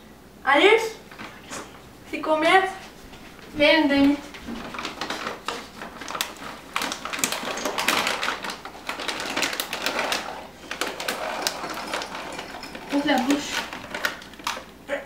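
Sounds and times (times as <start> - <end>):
plastic bag crinkling: 4.0 - 14.8.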